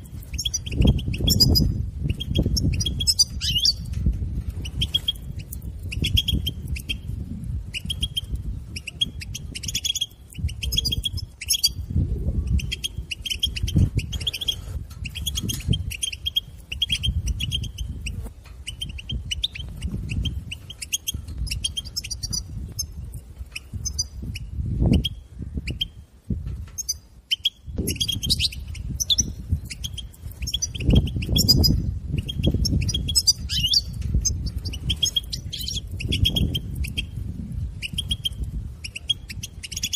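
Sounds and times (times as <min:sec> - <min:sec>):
goldfinch twittering: 0:00.1 - 0:03.9, 0:07.7 - 0:11.8, 0:23.6 - 0:25.9, 0:26.8 - 0:37.2.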